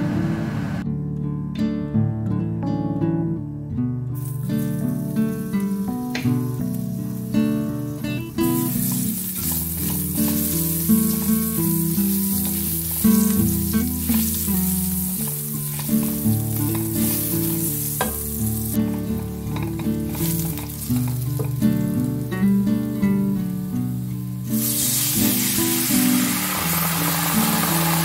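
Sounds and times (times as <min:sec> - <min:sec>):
garlic sizzling in hot oil: 0:04.2 - 0:28.0
spatula scraping and tapping pan: 0:08.7 - 0:11.5.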